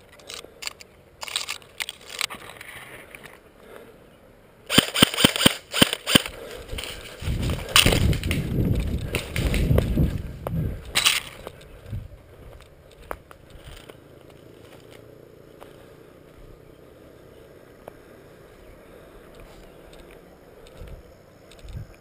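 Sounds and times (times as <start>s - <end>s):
low rumbling movement noise: 6.2s - 22.0s.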